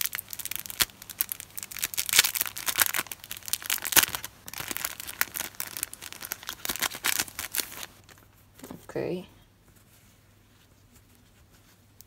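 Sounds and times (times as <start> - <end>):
plastic wrapper crinkling and tearing: 0.0 - 8.3.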